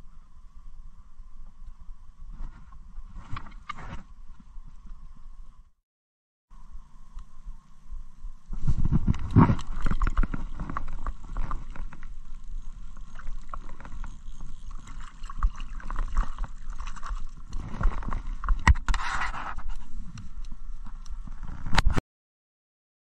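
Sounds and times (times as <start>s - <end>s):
fishing handling clicks and rustles: 8.7s - 21.3s.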